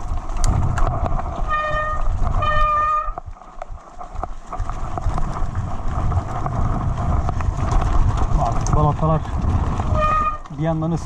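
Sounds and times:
tyres rolling on muddy trail: 0.0 - 11.0
bike brakes squealing: 1.5 - 3.2, 9.9 - 10.5.

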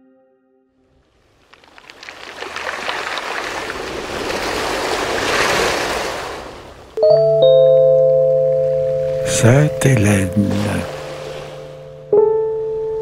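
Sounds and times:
sea surf: 1.1 - 7.0, 8.6 - 12.2.

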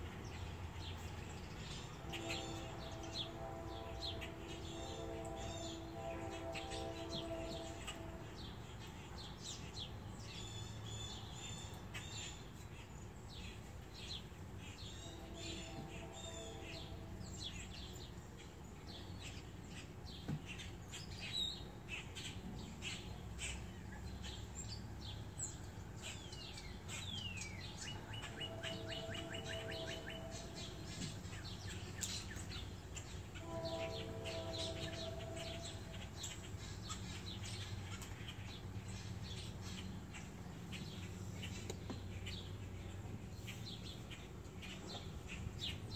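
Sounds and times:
birds chirping: 0.0 - 45.9
steady low hum: 0.0 - 45.9
bird trill: 26.9 - 38.4
low held tones: 27.9 - 31.0.

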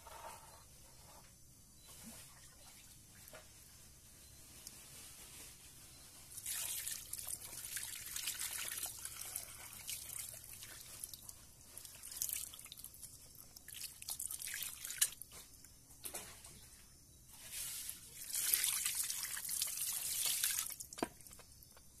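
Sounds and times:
water splashing and dripping: 6.4 - 15.3, 18.2 - 21.4.

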